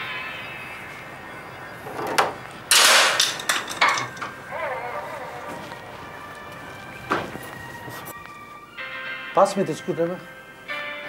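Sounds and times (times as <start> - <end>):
scraping rattle: 1.9 - 4.4.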